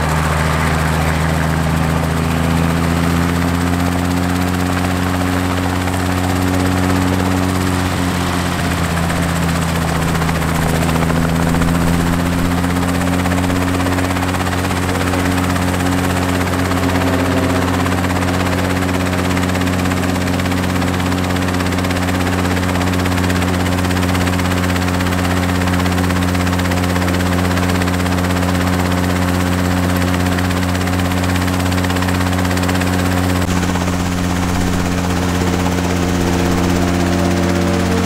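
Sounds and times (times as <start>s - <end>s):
helicopter engine and rotor: 0.0s - 38.0s.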